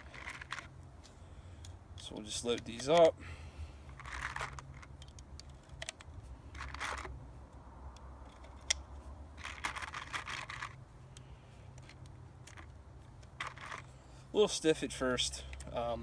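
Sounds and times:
rounds rattling in cardboard box: 0:00.0 - 0:00.7, 0:04.0 - 0:04.9, 0:06.6 - 0:07.1, 0:09.4 - 0:10.8, 0:13.4 - 0:13.9.

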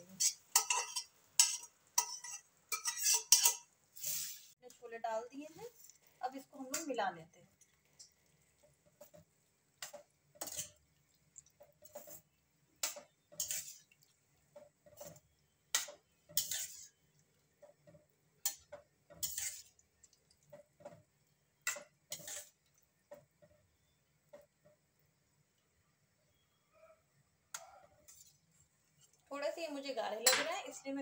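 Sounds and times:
spoon scraping a pan: 0:00.0 - 0:04.6, 0:07.6 - 0:23.7, 0:27.5 - 0:29.2.

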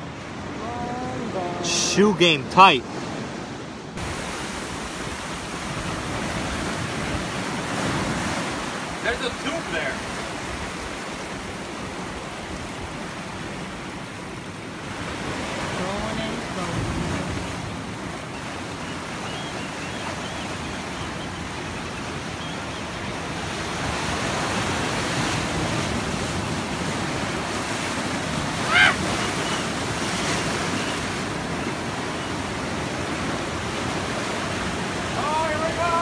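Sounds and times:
surf washing over sand: 0:00.0 - 0:36.0
high-pitched cry: 0:28.6 - 0:29.1.

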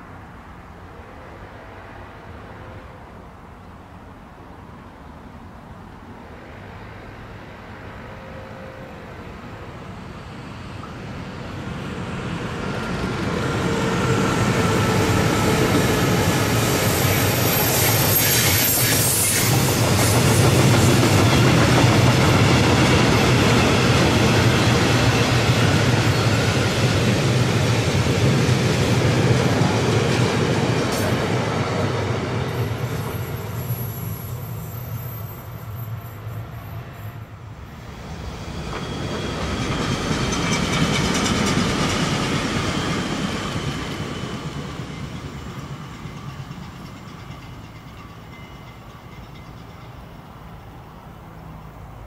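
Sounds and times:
train wheels rumbling on rails: 0:09.6 - 0:52.0
high wheel squealing: 0:13.6 - 0:21.4.

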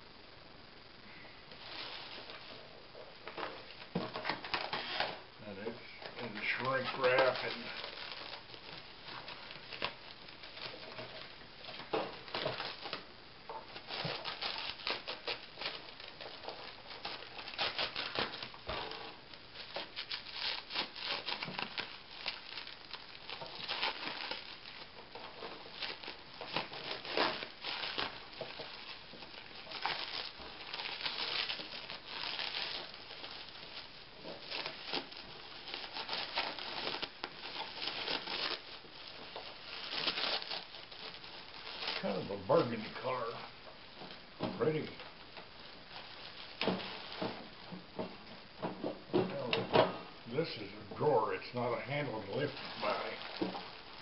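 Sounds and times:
plastic wrap crinkling: 0:01.1 - 0:54.0
plastic wrap tearing: 0:01.5 - 0:54.0.

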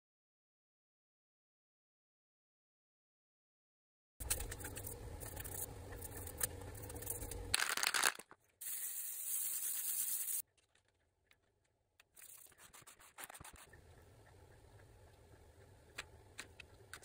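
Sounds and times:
paper rustling: 0:07.6 - 0:08.4
scratchy rubbing on paper: 0:12.2 - 0:13.7.

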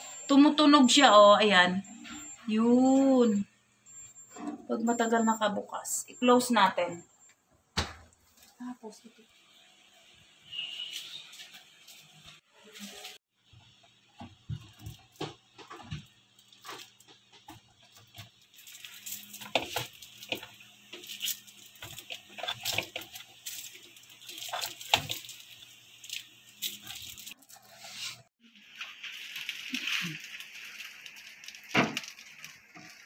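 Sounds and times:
pouches crinkling: 0:14.6 - 0:33.0.

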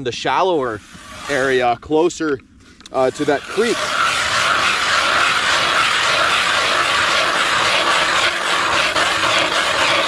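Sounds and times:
ice auger grinding ice: 0:00.7 - 0:01.7, 0:03.0 - 0:10.0
crank rasping: 0:03.1 - 0:10.0.

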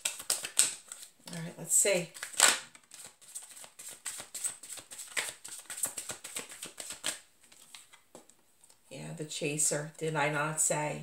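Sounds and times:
cards being shuffled: 0:00.0 - 0:01.5, 0:02.1 - 0:08.8.

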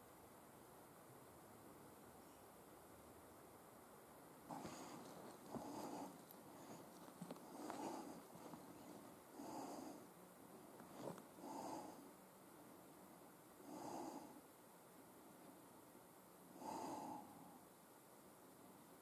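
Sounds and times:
soft slow breathing: 0:04.5 - 0:14.6, 0:16.5 - 0:17.8.

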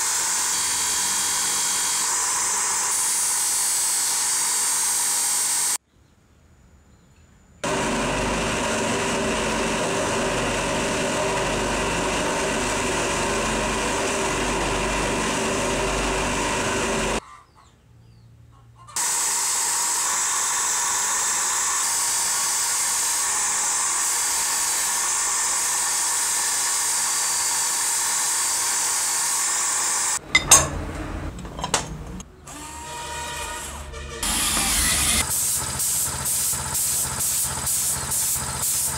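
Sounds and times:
bench grinder buffing metal: 0:00.0 - 0:05.8, 0:07.6 - 0:17.2, 0:32.7 - 0:35.3.

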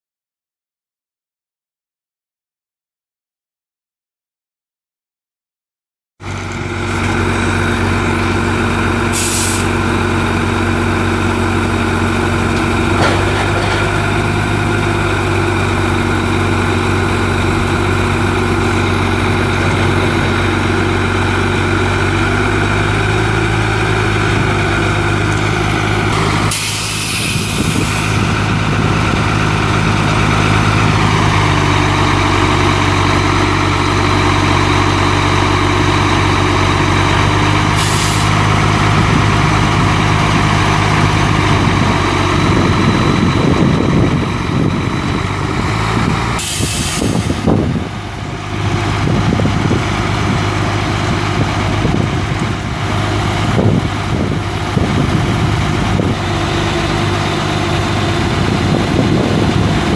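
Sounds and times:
diesel truck idling: 0:06.2 - 0:59.9
air brake hiss: 0:09.1 - 0:09.7, 0:26.5 - 0:28.2, 0:37.8 - 0:38.3, 0:46.4 - 0:47.4.

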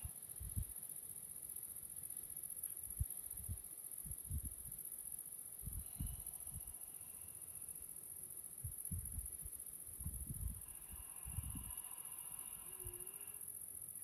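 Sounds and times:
insects chirring: 0:00.0 - 0:14.0
low thumps: 0:10.0 - 0:10.6.

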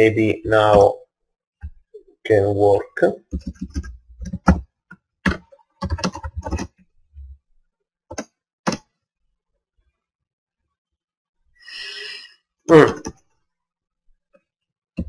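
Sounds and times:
computer keyboard typing: 0:03.3 - 0:04.6, 0:05.2 - 0:06.8.

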